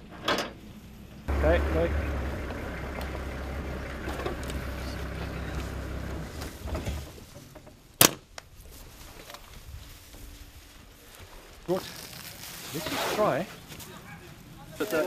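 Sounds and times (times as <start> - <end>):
vehicle engine humming: 0.6 - 7.7.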